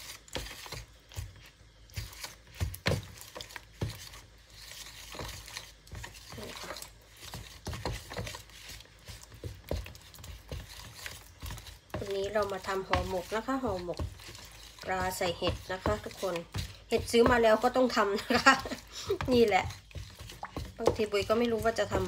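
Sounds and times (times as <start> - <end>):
wooden spoon stirring liquid: 0.0 - 22.0
spoon knocking and scraping bowl: 5.0 - 22.0.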